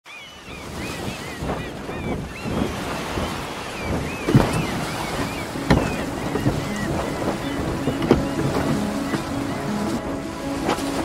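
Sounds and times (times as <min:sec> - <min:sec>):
wind: 0:00.0 - 0:11.0
birds chirping: 0:00.1 - 0:11.0
sea waves: 0:00.1 - 0:11.0
dull knocks: 0:04.2 - 0:09.9.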